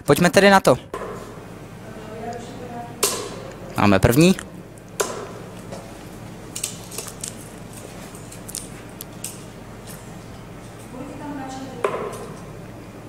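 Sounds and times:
steady low hum: 0.0s - 13.0s
darts hitting dartboard: 5.0s - 5.5s.

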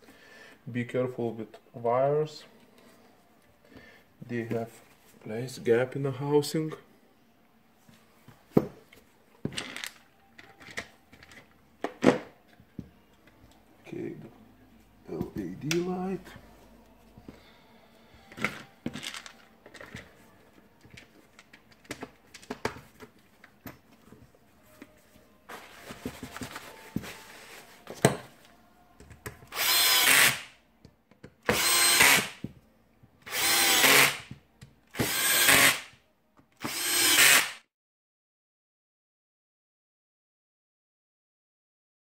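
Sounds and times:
drill-driver driving screws: 29.5s - 30.5s, 31.5s - 32.4s, 33.3s - 34.3s, 34.9s - 35.9s, 36.6s - 37.6s.

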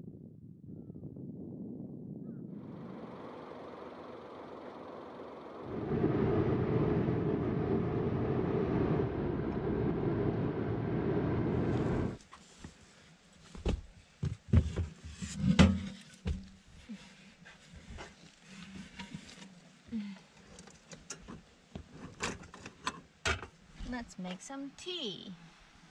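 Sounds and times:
road traffic rush: 2.7s - 12.2s.

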